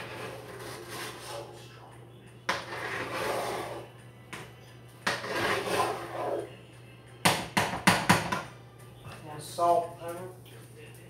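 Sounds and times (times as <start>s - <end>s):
masher squishing and scraping pot: 0.0s - 1.6s, 2.5s - 3.9s, 5.0s - 6.5s.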